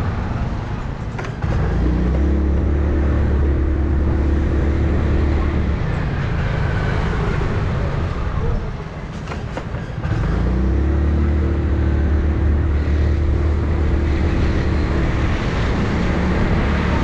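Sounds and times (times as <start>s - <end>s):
road noise: 0.0s - 17.0s
motorcycle engine revving: 1.4s - 8.0s, 10.0s - 17.0s
wind noise: 12.4s - 17.0s.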